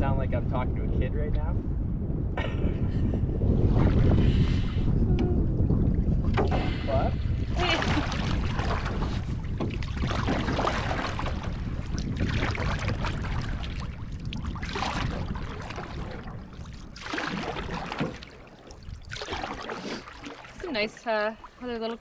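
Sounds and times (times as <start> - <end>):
wind rumble on microphone: 0.0 - 22.0
paddle splashing in water: 6.1 - 22.0.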